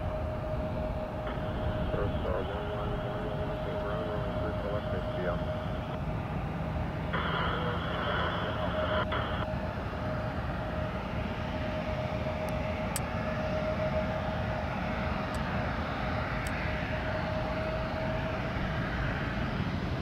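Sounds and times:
airplane engines running: 0.0 - 20.0
constant tone: 0.0 - 20.0.

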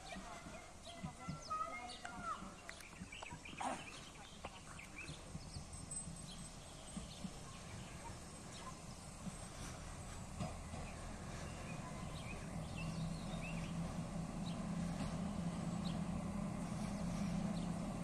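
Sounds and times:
low steady rumble: 0.0 - 18.0
bird chirps: 2.6 - 9.8, 10.7 - 17.8.

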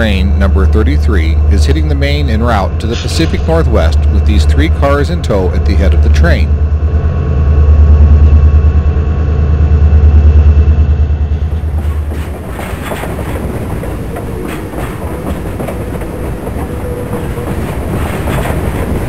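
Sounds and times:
locomotive engine drone: 0.0 - 19.0
train wheels clattering: 11.3 - 19.0.

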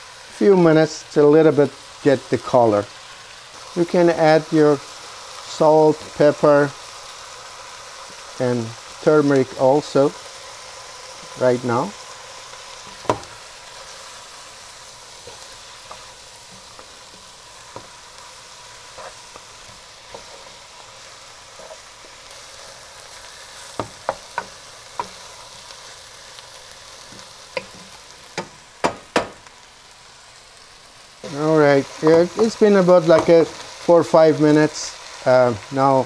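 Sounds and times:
chicken and onion sizzling in oil: 0.0 - 36.0
sharp knocks: 28.4 - 29.4.

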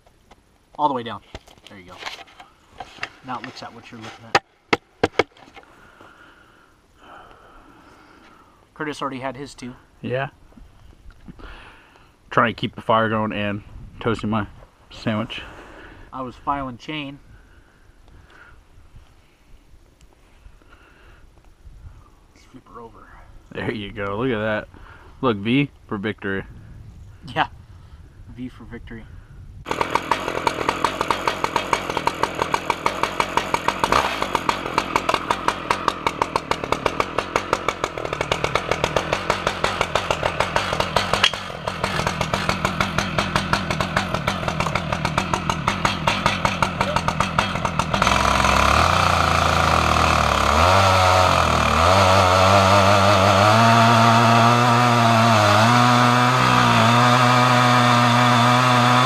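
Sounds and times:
chainsaw at full throttle cutting log: 29.7 - 59.0
chainsaw idling: 29.7 - 59.0.

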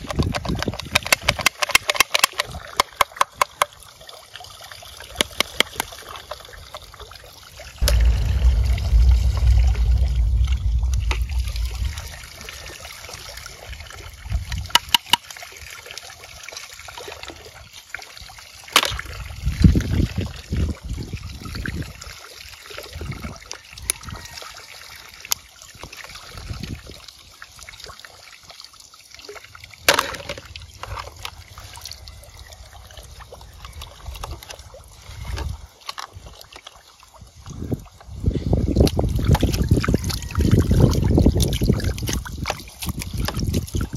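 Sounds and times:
muddy water sloshing: 39.0 - 43.9.

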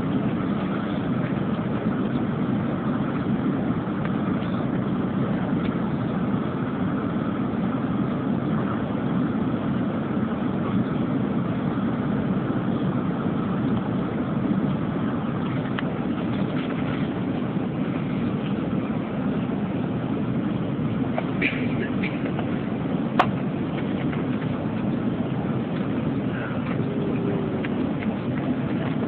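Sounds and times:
airliner cabin engine rumble: 0.0 - 29.0.

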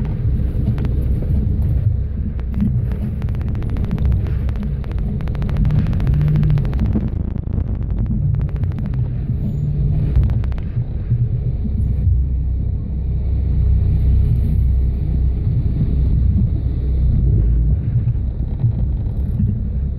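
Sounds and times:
rattle of ticks: 0.0 - 10.8
off-road vehicle engine rumble: 0.0 - 19.9.

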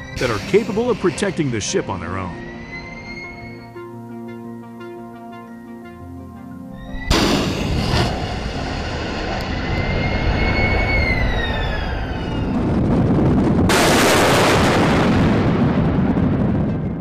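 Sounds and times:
rushing rocket whistle: 2.3 - 3.8, 6.8 - 14.0
missile launch blast: 7.1 - 17.0.

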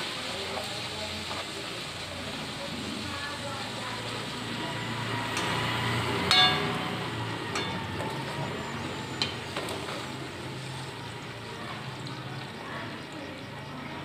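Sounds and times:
bread sizzling in hot oil: 0.0 - 14.0
metal spoon clinking on pan: 6.3 - 8.2.

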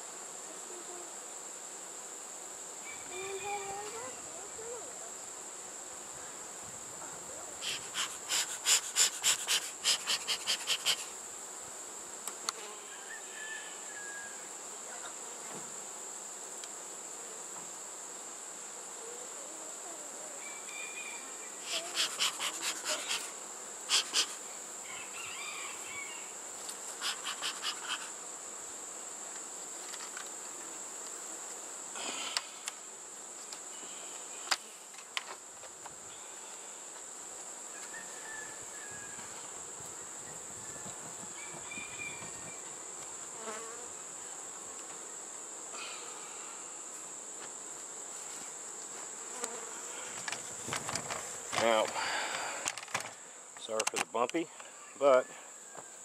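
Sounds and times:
high-pitched insect trill: 2.1 - 53.6
bellows puffing: 7.6 - 11.2, 21.6 - 24.5, 26.8 - 28.2.

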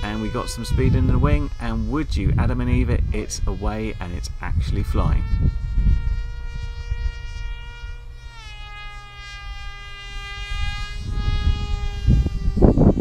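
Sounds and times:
electric motor and propeller whining: 0.0 - 13.0.

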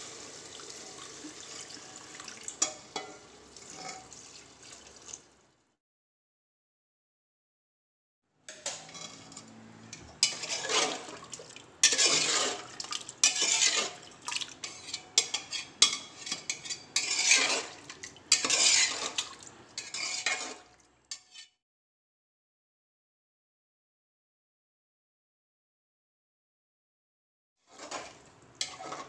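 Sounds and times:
ladle scraping a metal pot: 2.6 - 4.2, 8.5 - 21.6, 27.7 - 29.0.

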